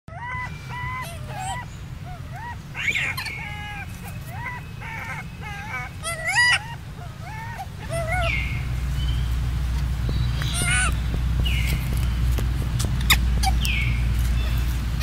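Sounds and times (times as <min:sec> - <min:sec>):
infant monkey crying: 0:00.1 - 0:08.8, 0:10.4 - 0:11.1, 0:12.8 - 0:14.0.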